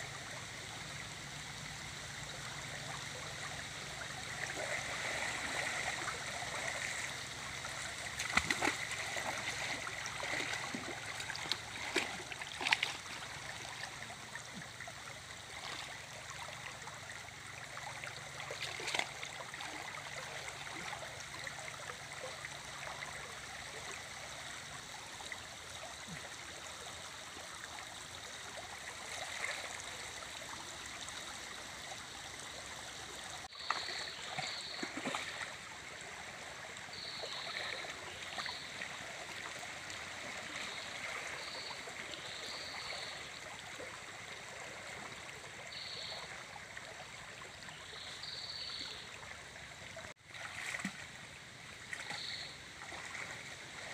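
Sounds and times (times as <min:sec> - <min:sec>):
stream flowing fast: 0:00.0 - 0:23.2
splashes of person wading: 0:07.8 - 0:13.8, 0:18.5 - 0:19.8, 0:33.6 - 0:35.5, 0:50.2 - 0:51.1, 0:52.8 - 0:53.4.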